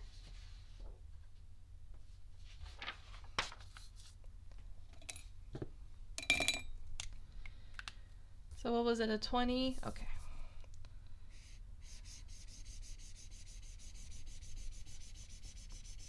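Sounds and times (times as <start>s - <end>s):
paper rustling: 2.5s - 4.2s
steady low hum: 4.2s - 16.0s.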